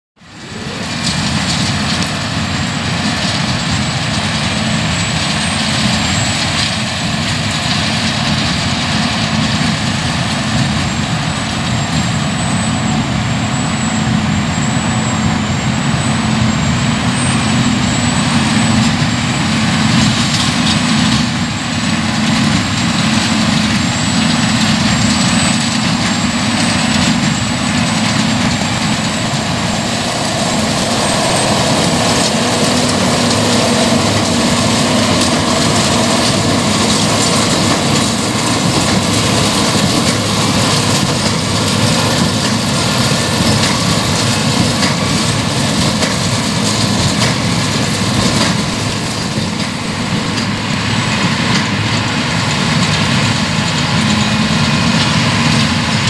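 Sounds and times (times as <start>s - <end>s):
tractor diesel engine running: 0.2s - 56.0s
baler mechanical clatter: 16.6s - 56.0s.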